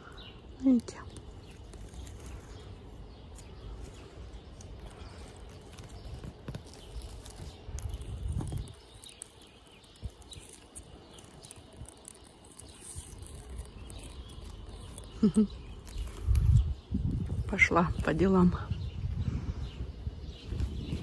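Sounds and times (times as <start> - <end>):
faint birds chirping: 0.0 - 21.0
low microphone rumbles: 12.9 - 21.0.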